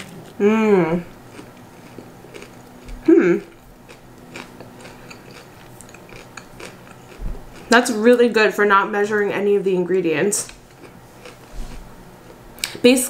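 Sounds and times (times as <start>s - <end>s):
person humming: 0.4s - 1.1s, 3.0s - 3.5s
person chewing sandwich: 1.0s - 7.7s, 10.5s - 12.4s.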